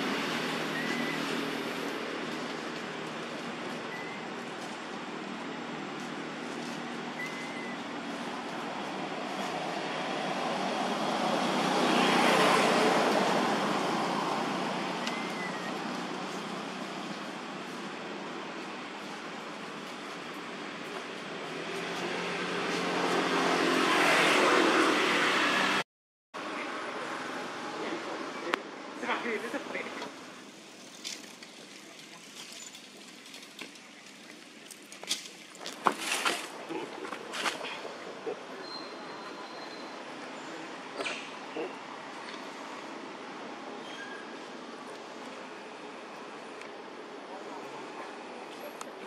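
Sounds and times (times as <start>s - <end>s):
vehicle passing by: 0.0s - 3.6s, 7.9s - 17.5s, 21.0s - 25.8s
outdoor background noise: 0.0s - 49.0s.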